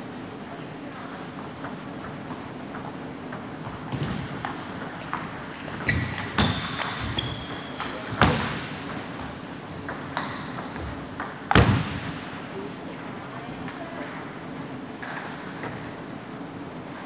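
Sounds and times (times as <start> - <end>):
shoes squeaking on wooden floor: 4.3 - 8.4, 9.7 - 11.0.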